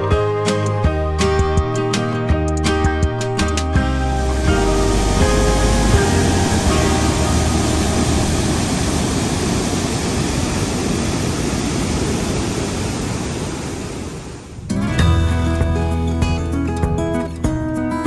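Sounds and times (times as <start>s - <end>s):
waterfall rushing: 3.6s - 14.7s.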